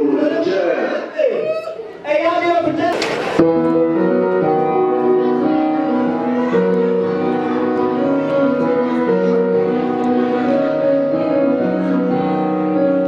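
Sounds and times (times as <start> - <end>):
piano chords ringing: 3.3 - 13.0.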